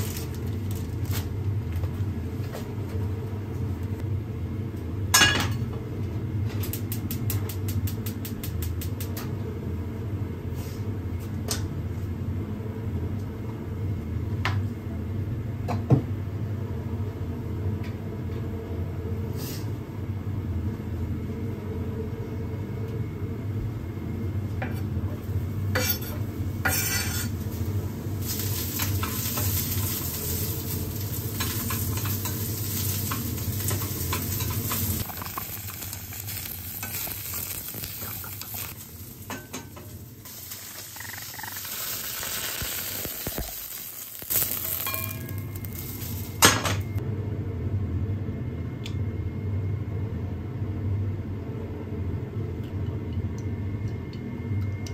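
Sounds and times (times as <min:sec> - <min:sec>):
steady low hum: 0:00.0 - 0:54.9
mushrooms sizzling in oil: 0:26.8 - 0:46.7.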